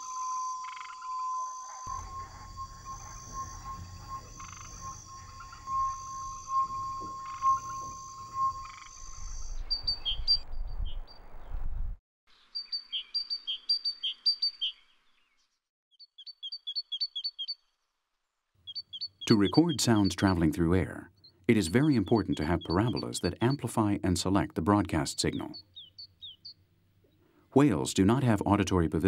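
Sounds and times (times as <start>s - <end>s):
steady high tone: 0.0s - 9.6s
great tit singing: 1.8s - 10.9s, 12.5s - 14.9s, 16.0s - 17.6s, 18.6s - 26.6s
low rumble: 1.9s - 12.0s
scattered knocks: 6.7s - 8.2s.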